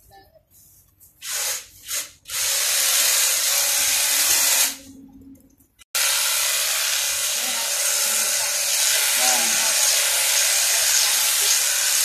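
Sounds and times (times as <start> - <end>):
hedge trimmer cutting shrub: 6.0 - 12.0.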